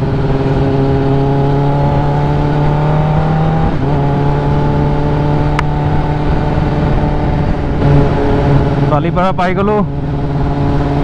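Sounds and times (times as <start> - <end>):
low wind rumble: 0.0 - 11.0
motorcycle engine cruising: 0.0 - 11.0.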